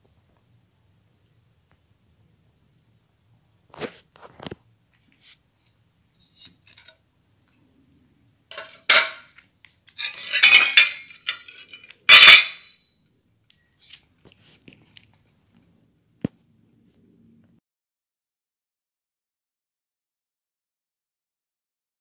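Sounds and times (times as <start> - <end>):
metal bowl clattering on table: 8.5 - 9.4, 10.0 - 12.7.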